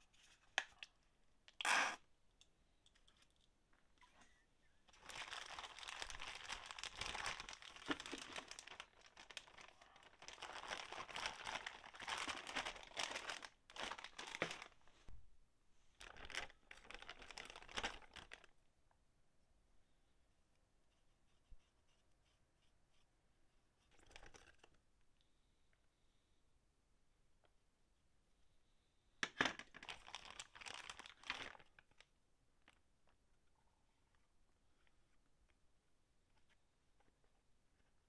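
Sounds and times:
plastic bag crinkling: 0:04.9 - 0:14.8, 0:16.0 - 0:18.5, 0:29.6 - 0:32.0.

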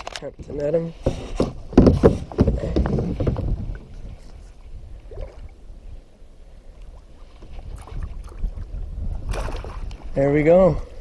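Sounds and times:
small knocks: 0:00.4 - 0:03.6
water lapping on kayak hull: 0:01.0 - 0:10.3.

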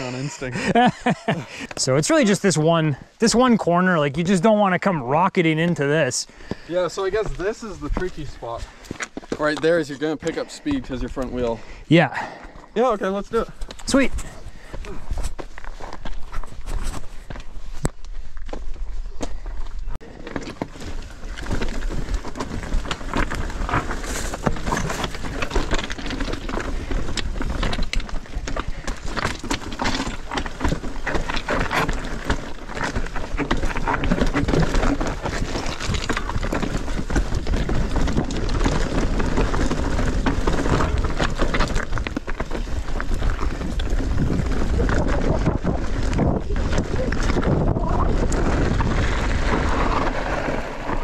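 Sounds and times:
bike rattling: 0:00.0 - 0:03.4, 0:05.0 - 0:51.0
bicycle tyres crunching on dirt: 0:00.0 - 0:51.0
wind buffeting microphone: 0:42.9 - 0:51.0.

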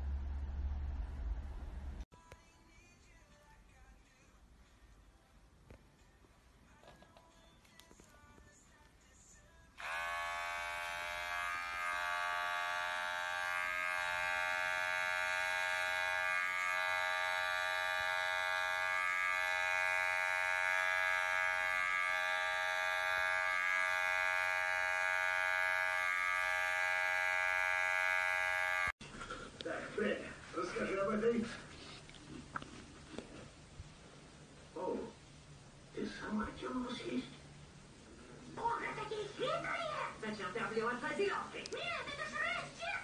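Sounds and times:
electric hair clipper buzzing: 0:09.8 - 0:29.0.

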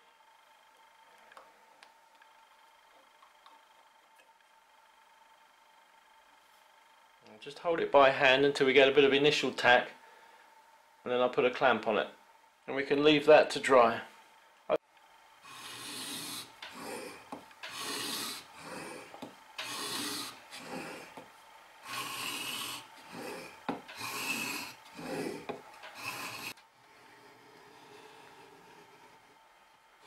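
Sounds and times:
blade scraping on sharpening stone: 0:23.9 - 0:26.5.

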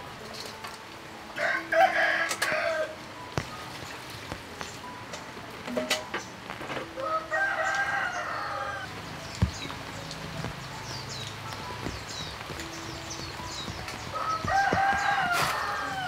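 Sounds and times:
rooster crowing: 0:01.4 - 0:03.0, 0:06.9 - 0:08.9, 0:14.1 - 0:16.0.

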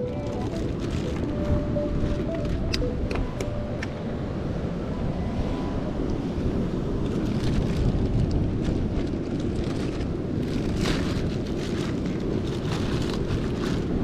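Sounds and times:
plastic bag crinkling: 0:00.0 - 0:02.6, 0:09.0 - 0:14.0
wind buffeting microphone: 0:00.0 - 0:14.0.

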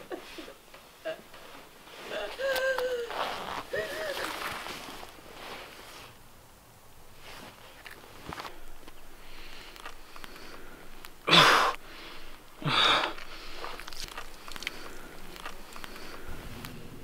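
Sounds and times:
rustling: 0:00.0 - 0:17.0
small clicks: 0:08.8 - 0:12.4, 0:13.1 - 0:16.8
man gasping in pain: 0:10.4 - 0:13.8.

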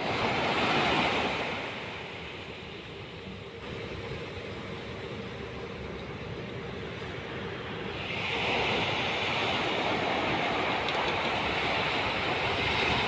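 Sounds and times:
surf washing onto beach: 0:00.0 - 0:02.8, 0:07.1 - 0:13.0.

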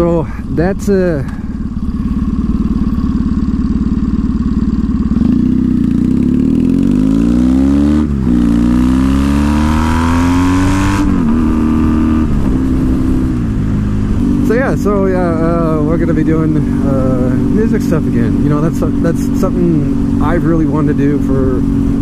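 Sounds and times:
motorcycle engine accelerating: 0:00.0 - 0:22.0
wind rushing: 0:09.6 - 0:14.5.

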